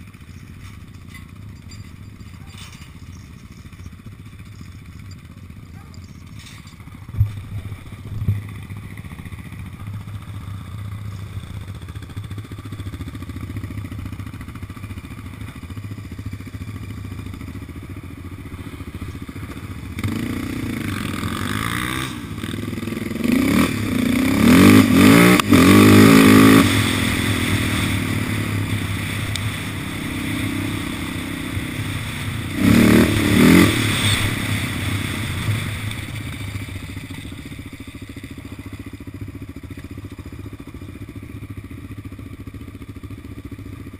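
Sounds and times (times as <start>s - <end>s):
quad engine revving: 16.3s - 38.8s.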